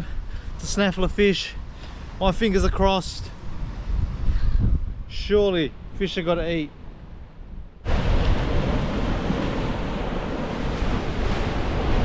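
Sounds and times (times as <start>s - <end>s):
wind buffeting microphone: 0.0s - 6.1s, 6.8s - 12.0s
waves washing against rocks: 7.9s - 12.0s.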